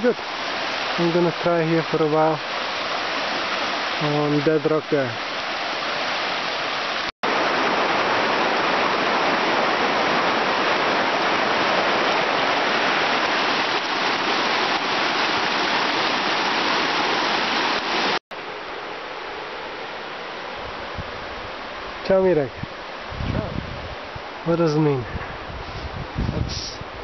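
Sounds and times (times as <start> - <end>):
river rapids rushing over rocks: 0.0 - 18.2.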